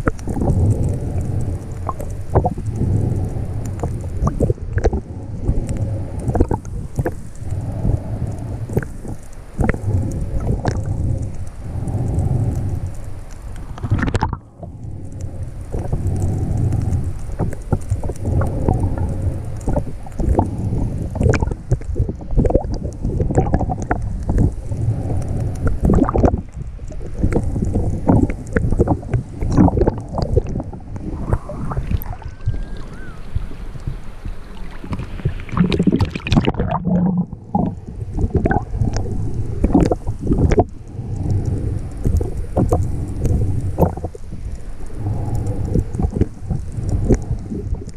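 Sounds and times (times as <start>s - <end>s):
muffled water sloshing: 0.0s - 47.9s
knocks and crackles: 8.3s - 32.2s.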